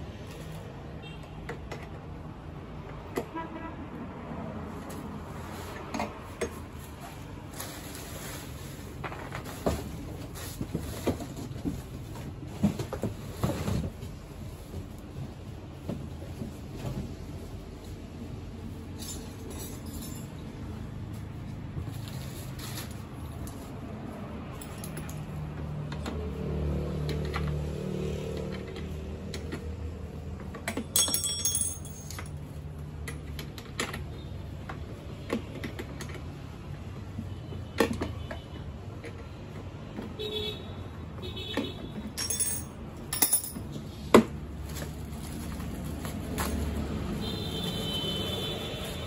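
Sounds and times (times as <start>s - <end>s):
metallic clinks of small parts: 24.6s - 25.3s, 30.9s - 32.4s, 42.2s - 43.7s.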